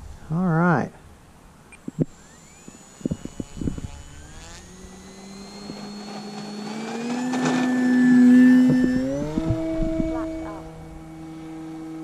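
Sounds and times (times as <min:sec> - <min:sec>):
model plane electric motor whine: 0:01.7 - 0:12.0.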